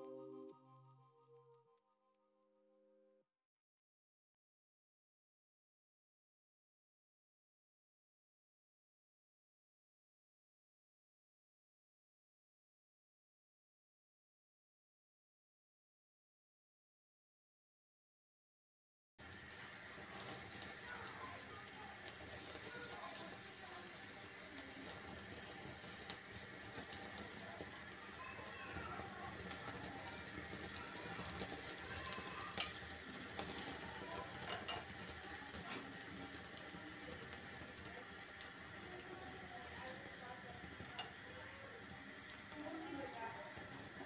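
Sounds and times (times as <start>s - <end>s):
meat sizzling over flame: 19.2s - 44.0s.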